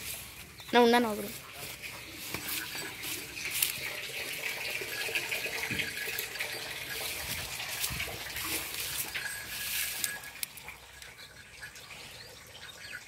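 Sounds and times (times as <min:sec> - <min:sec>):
cow urinating onto straw: 0:00.0 - 0:13.0.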